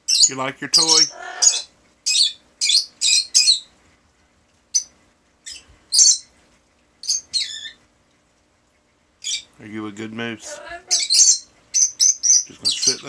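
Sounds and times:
parrot squawking and chirping: 0.1s - 3.7s, 4.7s - 6.3s, 7.0s - 7.8s, 9.2s - 9.6s, 10.3s - 13.0s.

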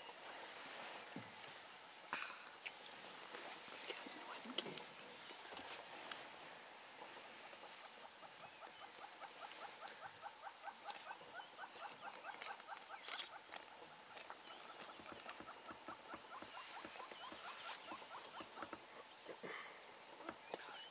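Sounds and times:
small animal chirping: 10.0s - 13.5s.

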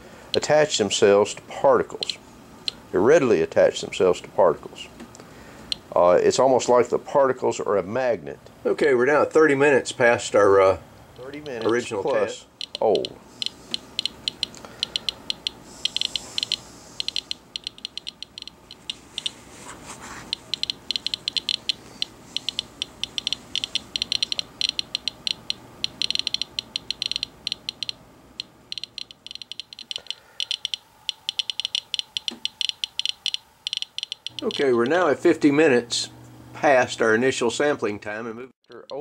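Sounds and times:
geiger counter clicking: 11.2s - 11.8s, 12.5s - 19.4s, 20.3s - 35.0s, 38.6s - 39.0s.

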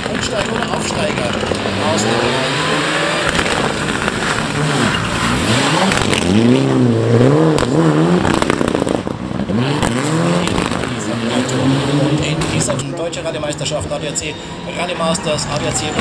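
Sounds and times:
rally car engine revving: 0.0s - 16.0s
sharp cracks: 3.0s - 6.4s.

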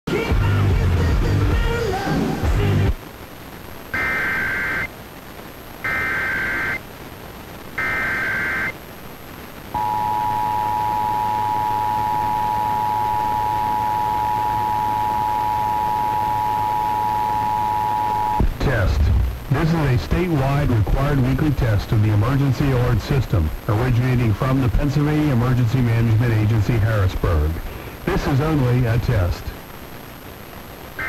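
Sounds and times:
screeching data tone bursts: 3.9s - 4.9s, 5.8s - 6.8s, 7.8s - 8.8s, 9.8s - 18.4s
two-tone attention signal: 9.8s - 18.4s.

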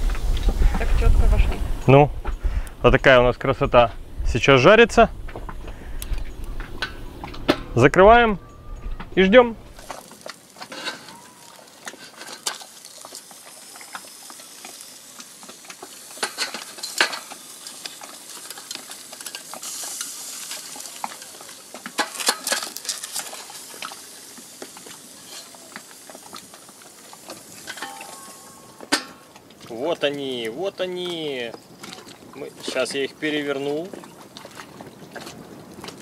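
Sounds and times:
fish sizzling on grill: 9.2s - 36.0s
spatula scraping metal grate: 27.6s - 29.2s.

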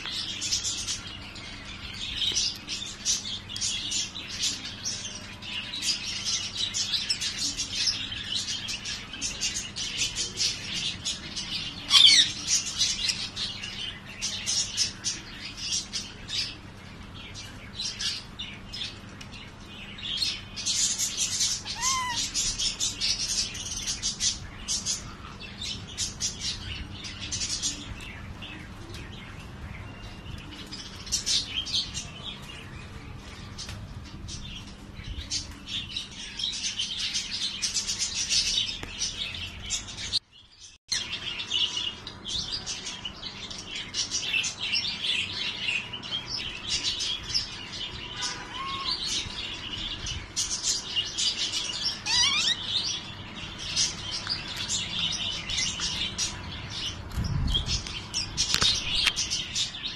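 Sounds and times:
budgerigars chattering and chirping: 5.7s - 16.6s, 20.2s - 28.2s, 43.5s - 59.9s
budgerigar sweeping call: 21.7s - 22.3s, 52.1s - 52.6s.

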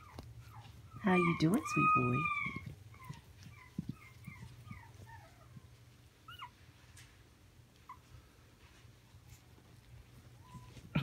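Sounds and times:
puppies whimpering: 0.0s - 6.9s, 9.4s - 11.0s.

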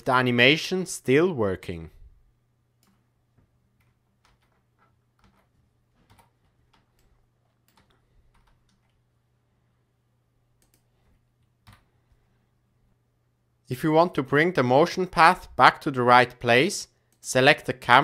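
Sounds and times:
keyboard and mouse clicks: 3.8s - 9.0s, 10.6s - 10.9s.

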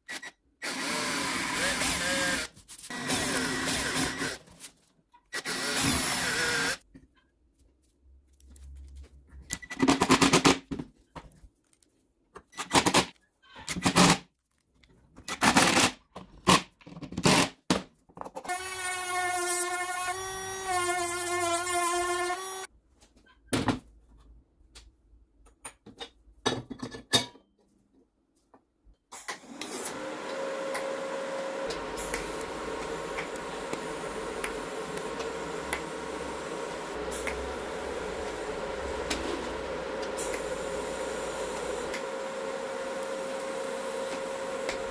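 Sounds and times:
power tool noise: 0.6s - 4.4s, 5.4s - 6.8s, 29.2s - 44.9s
motor whining: 29.5s - 44.9s.

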